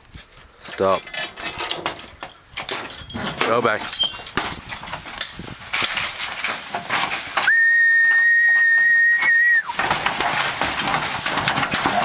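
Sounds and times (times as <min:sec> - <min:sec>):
animals scuffling in steel race: 0:00.2 - 0:12.0
long human whistle: 0:07.5 - 0:09.7.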